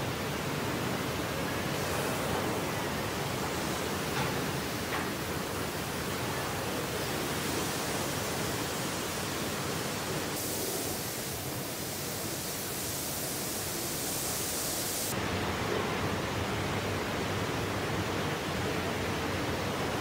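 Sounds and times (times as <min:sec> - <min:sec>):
rushing hiss of air: 0:00.8 - 0:15.2.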